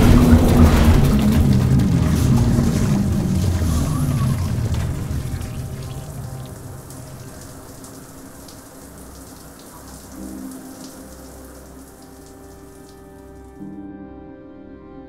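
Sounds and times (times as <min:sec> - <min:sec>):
low sustained music tones: 0:00.0 - 0:15.0
shower spraying on tile: 0:03.6 - 0:13.5.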